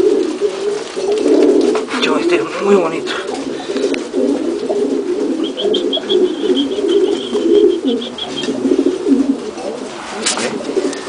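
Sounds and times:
pigeons cooing: 0:00.0 - 0:11.0
high rapid chirping: 0:05.3 - 0:08.7.

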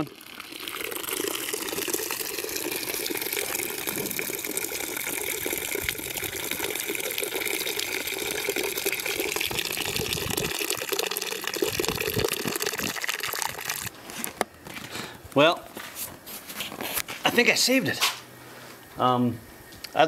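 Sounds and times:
syrup pouring into a plastic pail: 0:00.0 - 0:14.0.

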